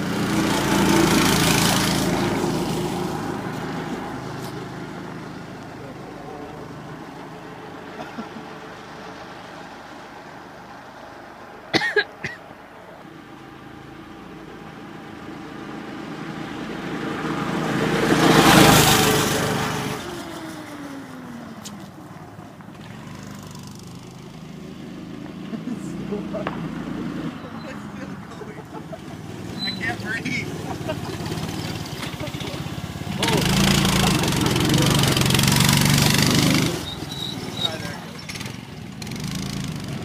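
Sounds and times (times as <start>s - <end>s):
go-kart engine running: 0.0s - 11.7s, 13.0s - 40.0s.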